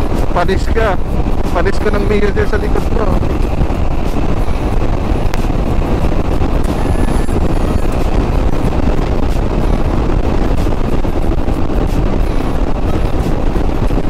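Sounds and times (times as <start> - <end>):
road noise: 0.0 - 14.0
wind rushing over microphone: 0.0 - 14.0
scooter engine: 3.4 - 9.0.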